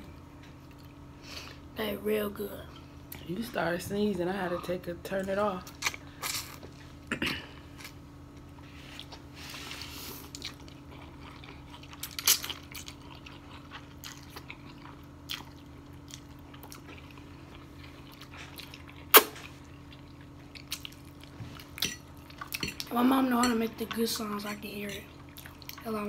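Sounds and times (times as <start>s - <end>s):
faint steady hum: 0.0s - 26.0s
chewing: 8.8s - 22.9s, 25.0s - 25.9s.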